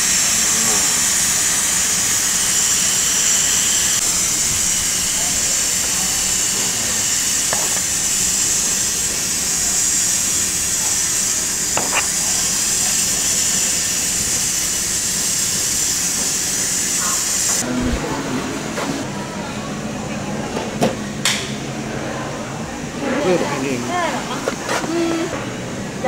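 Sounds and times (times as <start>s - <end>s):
steaks sizzling on griddle: 4.4s - 17.6s.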